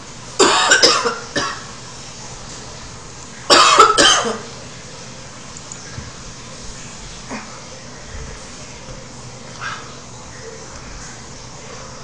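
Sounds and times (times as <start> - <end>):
woman coughing hard: 0.4 - 1.6, 3.5 - 4.5.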